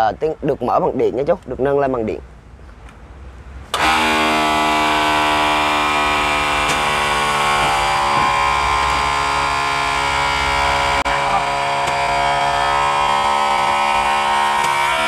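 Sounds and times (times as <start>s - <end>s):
electric pump whine: 3.7s - 15.0s.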